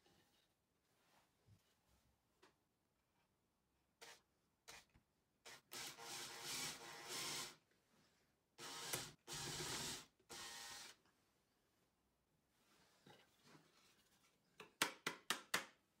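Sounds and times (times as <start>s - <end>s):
cordless drill boring into plywood: 5.7s - 7.6s, 8.6s - 11.0s.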